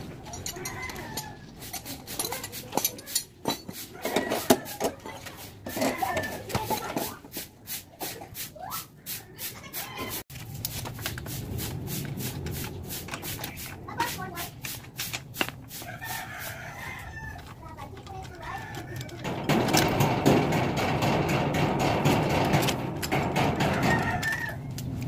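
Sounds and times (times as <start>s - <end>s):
rooster crowing: 0.5s - 1.4s, 15.8s - 17.6s, 23.4s - 24.8s.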